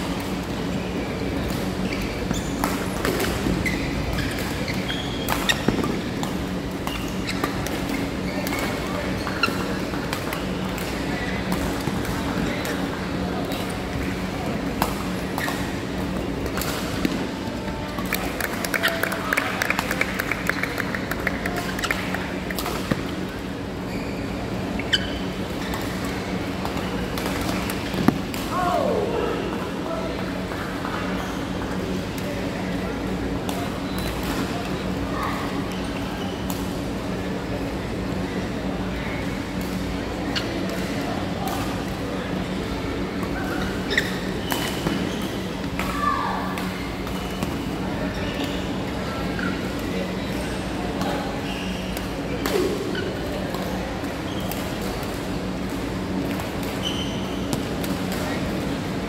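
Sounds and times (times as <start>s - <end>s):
steady hall hum: 0.0s - 59.0s
shoes squeaking on court floor: 0.3s - 17.3s, 20.4s - 28.4s, 30.8s - 31.9s, 43.1s - 58.6s.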